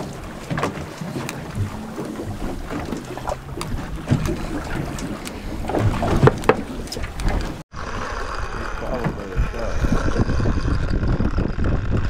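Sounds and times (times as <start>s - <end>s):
knocks and clicks handling fish: 0.0s - 7.6s
water noise: 0.0s - 12.0s
wind: 0.0s - 12.0s.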